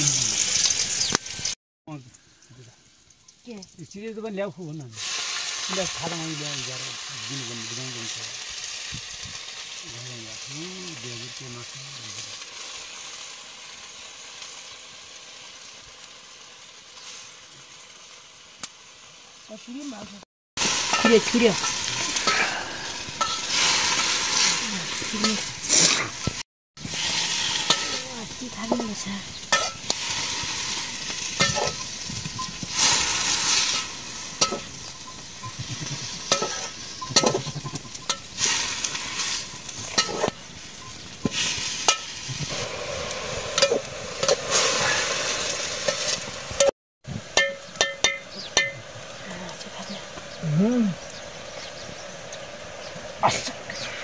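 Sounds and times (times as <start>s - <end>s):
greens sizzling in a pan: 0.0s - 54.0s
spoon scraping a pan: 23.1s - 42.7s.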